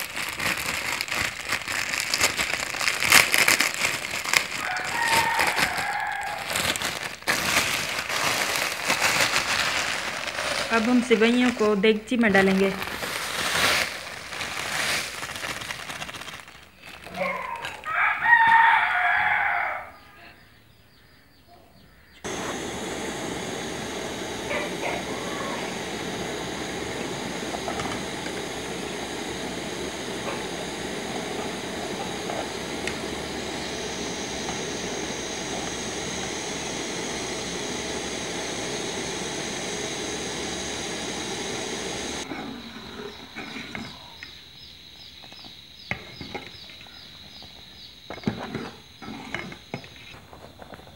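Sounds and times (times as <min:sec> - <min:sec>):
steady hiss: 0:00.0 - 0:17.8, 0:22.2 - 0:42.3
plastic packet crinkling: 0:00.0 - 0:17.9
rooster crowing: 0:04.4 - 0:06.8, 0:17.2 - 0:20.4, 0:24.3 - 0:36.4.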